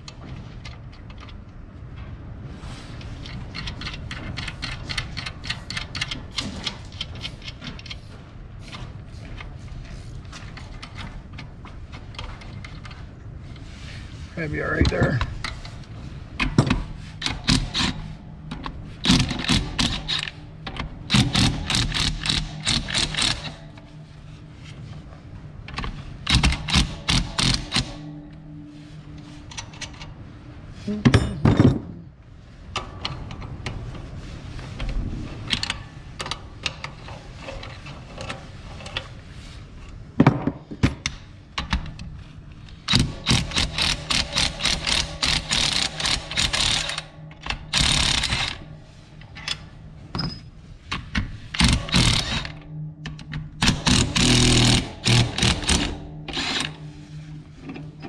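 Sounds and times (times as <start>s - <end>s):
impact driver hammering: 53.6s - 56.6s.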